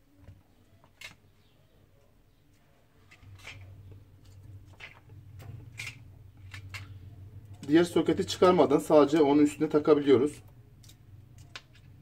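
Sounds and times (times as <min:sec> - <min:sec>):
low steady hum: 0:00.0 - 0:12.0
clicks and taps of small parts: 0:10.8 - 0:12.0.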